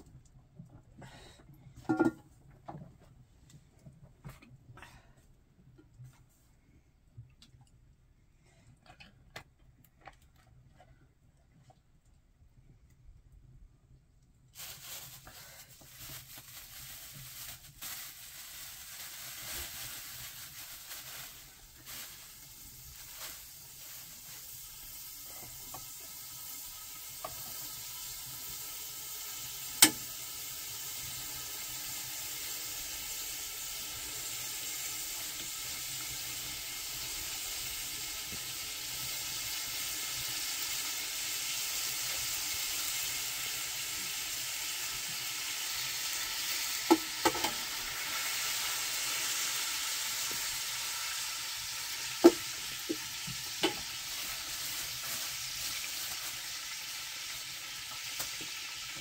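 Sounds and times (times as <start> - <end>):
potatoes sizzling in oil: 14.6 - 59.0.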